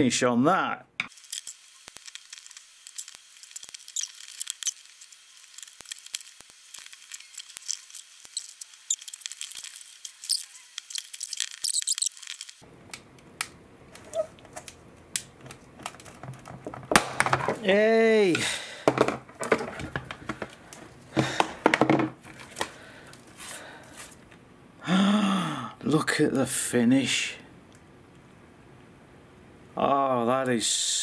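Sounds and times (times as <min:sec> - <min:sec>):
carbon fibre part cracking from mould: 0:12.2 - 0:17.6.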